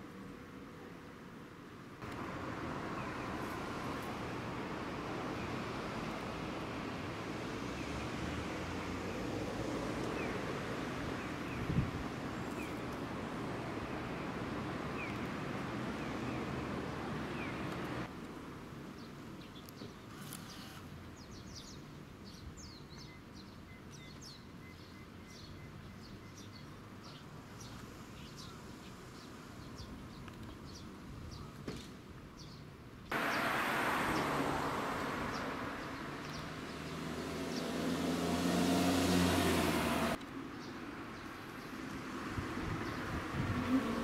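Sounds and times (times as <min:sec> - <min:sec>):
traffic noise: 0:00.0 - 0:44.0
small birds chirping: 0:19.0 - 0:31.8, 0:35.2 - 0:37.9
vehicle engine passing: 0:33.1 - 0:40.2.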